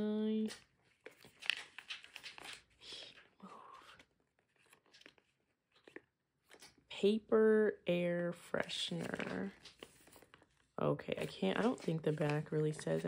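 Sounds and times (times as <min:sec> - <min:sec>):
plastic packet crinkling: 0:00.5 - 0:06.8.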